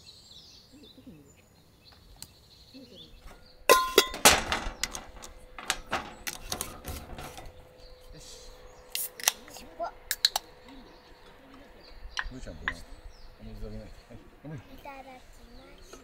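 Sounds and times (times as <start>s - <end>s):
faint outdoor background: 0.0s - 16.0s
loud sharp clicks and clatter: 4.1s - 7.5s.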